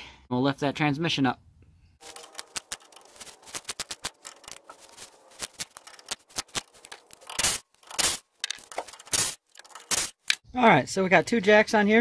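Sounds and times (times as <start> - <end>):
ratchet wrench clicking: 2.0 - 10.4.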